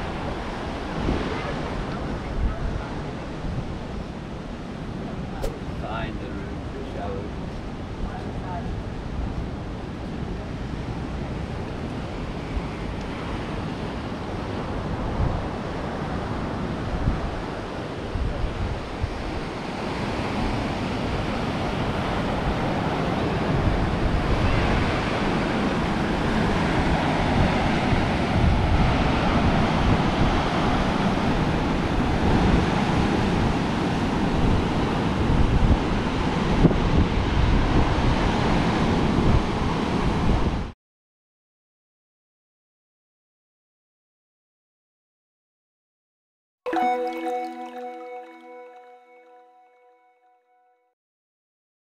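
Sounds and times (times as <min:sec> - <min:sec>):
sea surf washing on shore: 0:00.0 - 0:40.6
wind buffeting microphone: 0:00.0 - 0:40.7.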